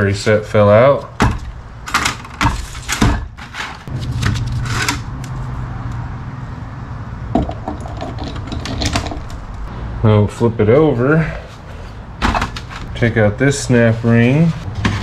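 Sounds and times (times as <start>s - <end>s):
metal parts knocking and clattering: 1.2s - 5.0s, 7.4s - 9.3s.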